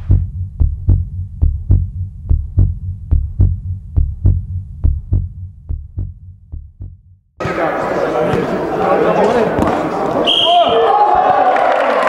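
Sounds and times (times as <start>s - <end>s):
heartbeat thumps: 0.0s - 7.2s.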